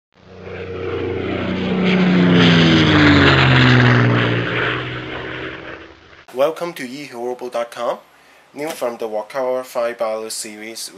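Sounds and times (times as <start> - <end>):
airplane engine drone: 0.2 - 6.3.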